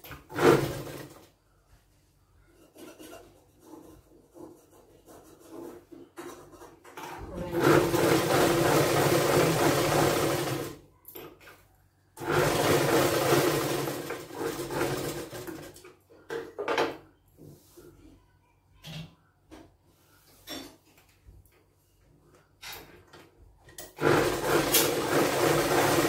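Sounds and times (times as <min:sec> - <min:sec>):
electric sewing machine stitching: 0:00.1 - 0:01.2, 0:07.4 - 0:10.8, 0:12.2 - 0:15.8, 0:23.9 - 0:26.0.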